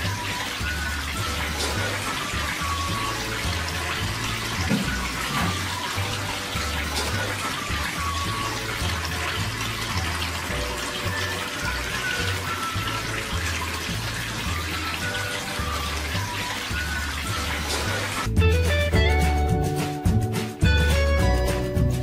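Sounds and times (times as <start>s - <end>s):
fountain water trickling: 0.0s - 19.4s
background music with bass line: 0.0s - 22.0s.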